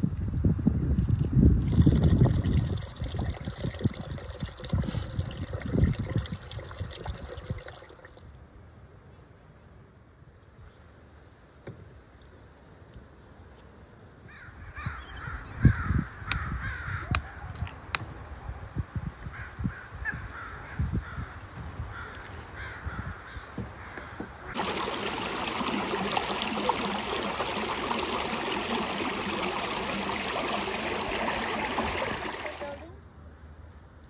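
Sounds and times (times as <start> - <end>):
wind buffeting microphone: 0.0 - 7.7
crows cawing: 14.3 - 17.1
rice swished in water: 24.6 - 32.8.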